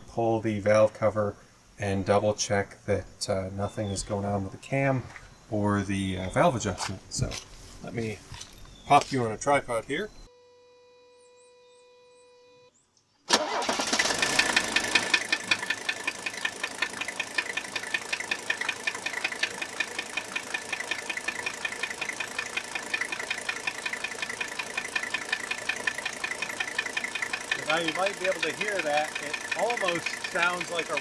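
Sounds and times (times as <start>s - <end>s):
diesel engine starting and idling: 13.3s - 31.0s
rhythmic metallic tapping: 15.4s - 31.0s.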